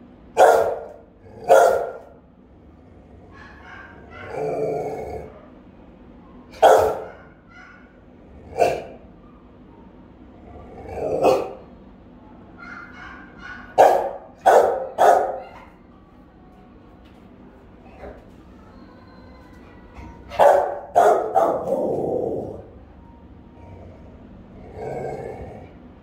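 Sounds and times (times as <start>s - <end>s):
dog barking: 0.3s - 2.2s, 3.3s - 5.6s, 6.4s - 9.9s, 11.0s - 11.7s, 12.6s - 15.8s, 20.0s - 22.6s.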